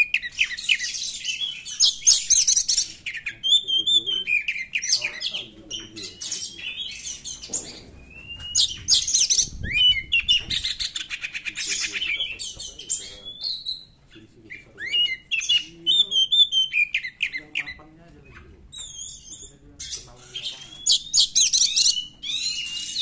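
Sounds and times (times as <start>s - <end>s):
bird singing high whistles: 5.8s - 11.1s, 11.7s - 14.0s, 14.6s - 17.4s, 18.2s - 23.0s.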